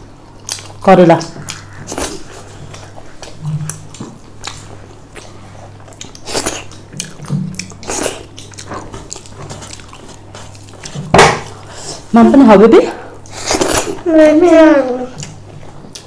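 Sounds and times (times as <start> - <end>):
steady low hum: 0.0 - 16.0
close chewing with wet smacks: 0.4 - 11.6, 15.1 - 16.0.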